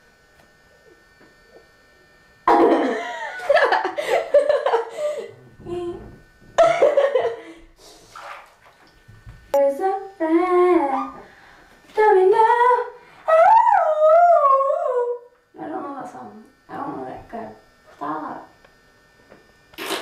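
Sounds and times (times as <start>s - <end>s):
girl singing wordless notes: 9.6s - 11.3s, 12.0s - 15.8s.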